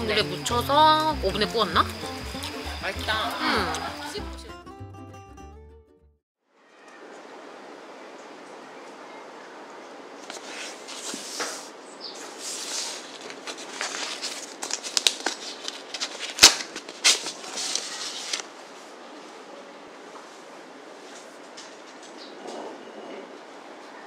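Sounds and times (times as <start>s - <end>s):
stiff paper crackling and rustling: 10.2s - 18.5s.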